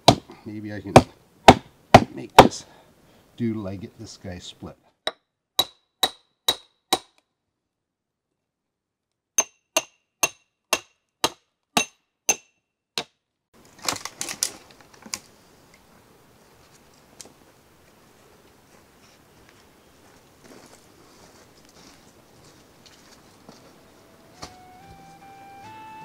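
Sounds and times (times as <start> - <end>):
hammer striking steel wedges: 5.1 - 7.2, 9.4 - 13.2
wood cracking and splintering: 13.6 - 15.2.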